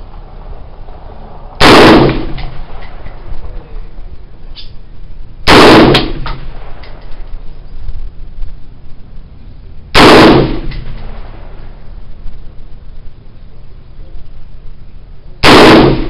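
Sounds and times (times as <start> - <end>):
rifle shots with echo: 1.6 - 3.3, 5.4 - 7.3, 10.0 - 11.8, 15.4 - 16.0.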